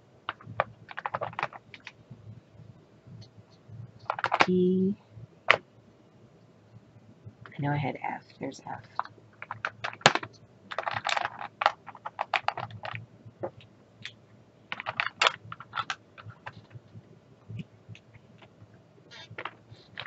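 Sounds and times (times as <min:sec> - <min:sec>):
plastic bottles clicking and clattering: 0:00.3 - 0:01.9, 0:04.1 - 0:04.5, 0:09.0 - 0:13.0, 0:14.7 - 0:16.7.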